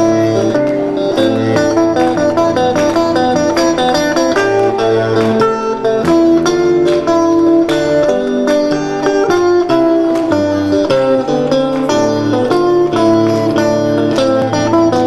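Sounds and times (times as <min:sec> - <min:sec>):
electric guitar melody: 0:00.0 - 0:15.0.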